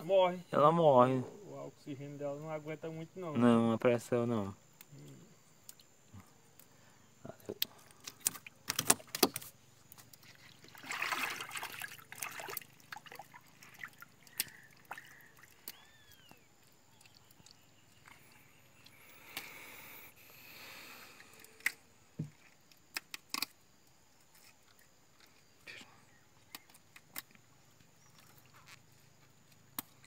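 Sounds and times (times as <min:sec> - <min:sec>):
water trickling and sloshing: 0:07.6 - 0:19.2.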